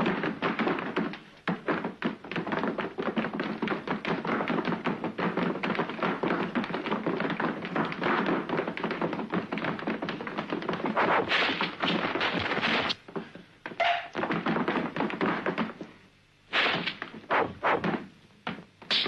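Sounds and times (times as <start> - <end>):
punch and block impacts: 16.5 - 18.0.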